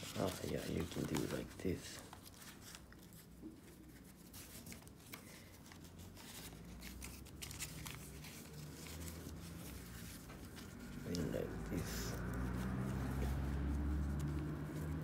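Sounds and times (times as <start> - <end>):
paper rustling and crinkling: 0.0 - 15.0.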